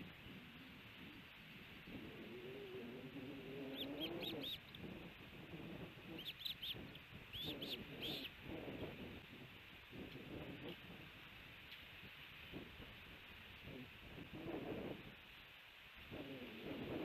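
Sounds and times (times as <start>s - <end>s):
osprey chirping: 3.5s - 4.7s, 6.0s - 8.4s.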